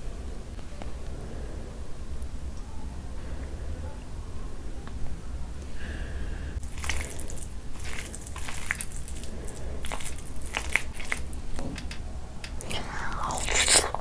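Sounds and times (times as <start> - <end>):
hand squelching wet food: 6.6 - 11.6.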